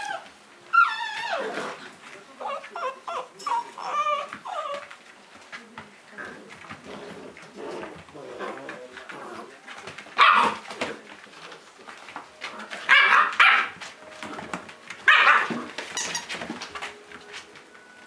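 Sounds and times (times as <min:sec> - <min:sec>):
puppies scuffling: 0:00.0 - 0:18.0
puppies barking: 0:10.1 - 0:10.7, 0:12.6 - 0:14.0, 0:15.0 - 0:16.4.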